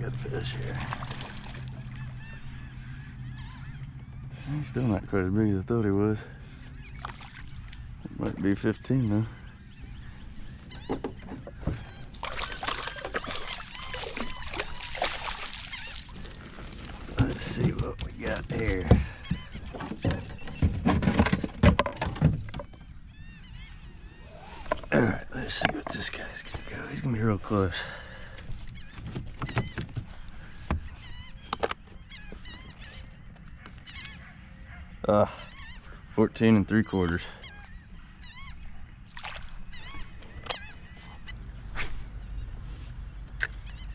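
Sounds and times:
birds chirping: 0:00.0 - 0:43.9
fish splashing at water surface: 0:12.1 - 0:17.0, 0:39.1 - 0:39.6.

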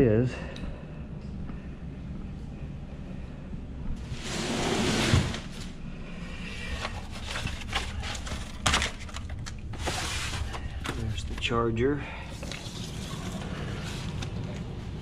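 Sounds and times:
cardboard scraping slide: 0:04.0 - 0:05.7.

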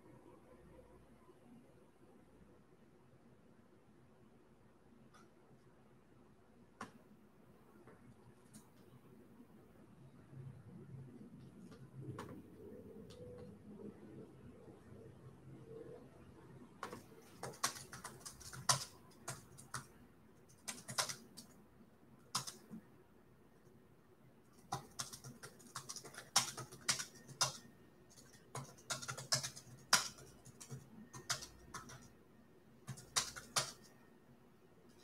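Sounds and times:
typing on computer keyboard: 0:16.8 - 0:21.6, 0:22.2 - 0:22.8, 0:24.5 - 0:32.2, 0:32.8 - 0:34.0.

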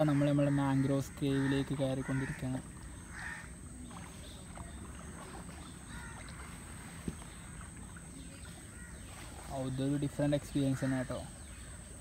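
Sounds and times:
water lapping against hull: 0:00.0 - 0:12.0
faint paddle strokes: 0:02.2 - 0:10.8.

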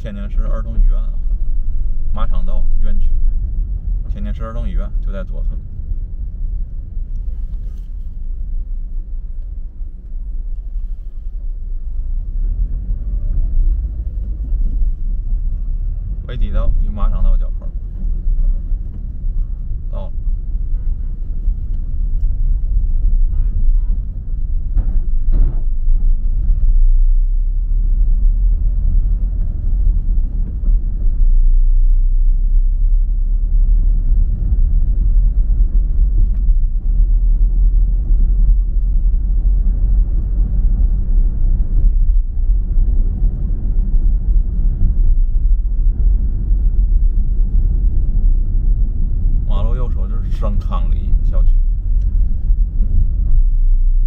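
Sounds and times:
car driving rumble: 0:00.0 - 0:54.0.

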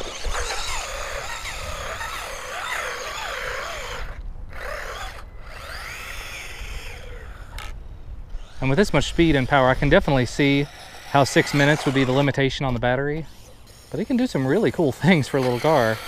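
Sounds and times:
toy truck electric motor whining: 0:00.0 - 0:12.4, 0:13.2 - 0:16.0.

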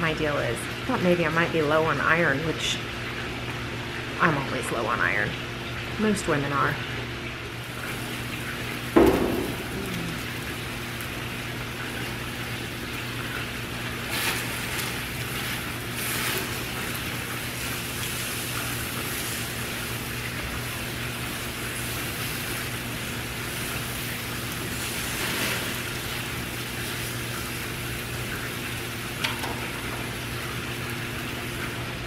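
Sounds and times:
steady low hum: 0:00.0 - 0:32.0
fat dripping into flames: 0:07.2 - 0:32.0
steaks sizzling on grill: 0:07.5 - 0:32.0.

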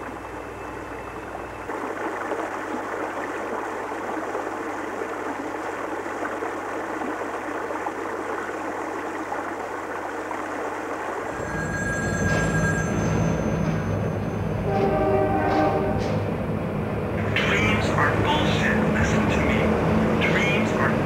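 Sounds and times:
running water rushing: 0:00.0 - 0:16.0, 0:17.2 - 0:21.0.

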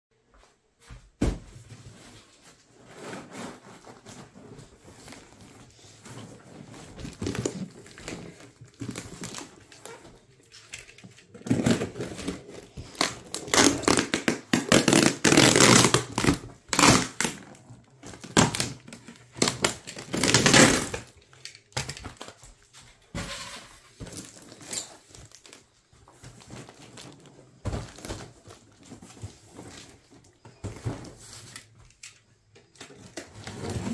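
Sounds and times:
plastic wrap tearing and crinkling: 0:06.8 - 0:22.4, 0:24.1 - 0:25.7.

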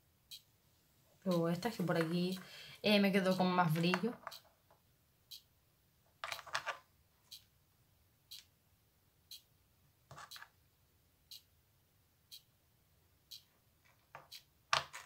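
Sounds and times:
clock ticking: 0:00.2 - 0:00.5, 0:01.3 - 0:04.5, 0:05.3 - 0:05.5, 0:07.3 - 0:07.5, 0:09.3 - 0:09.5, 0:11.2 - 0:11.6, 0:12.3 - 0:12.6, 0:13.3 - 0:13.5, 0:14.2 - 0:14.6.

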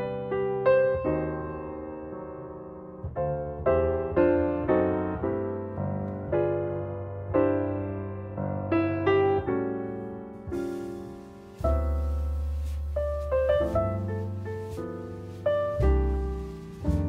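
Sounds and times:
slow piano music: 0:00.0 - 0:17.0.

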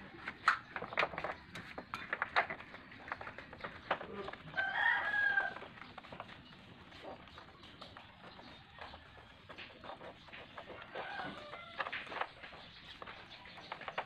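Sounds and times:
rooster crowing: 0:04.5 - 0:05.6, 0:11.0 - 0:11.9.

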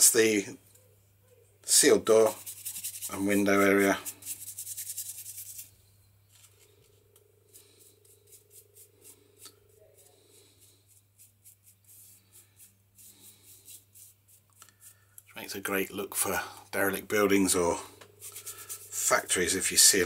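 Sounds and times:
paintbrush scrubbing panel: 0:02.1 - 0:05.7, 0:07.5 - 0:15.0, 0:18.2 - 0:19.2.

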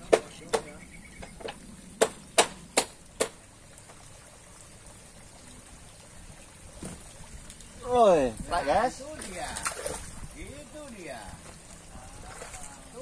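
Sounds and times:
fish tail slapping: 0:09.2 - 0:10.1.

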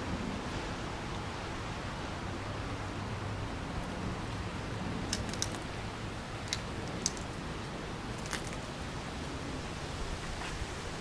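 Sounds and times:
waves: 0:00.0 - 0:11.0
wind: 0:00.0 - 0:11.0.

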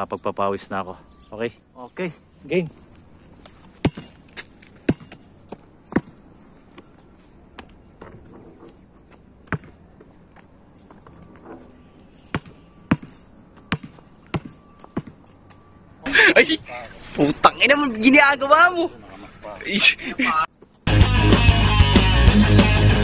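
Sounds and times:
basketball bouncing on court: 0:04.8 - 0:05.2, 0:09.4 - 0:09.8, 0:12.3 - 0:15.2.

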